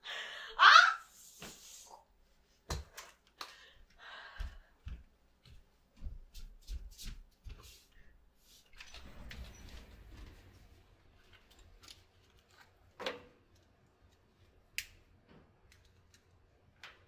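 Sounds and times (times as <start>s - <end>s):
soft footsteps: 3.8s - 12.0s.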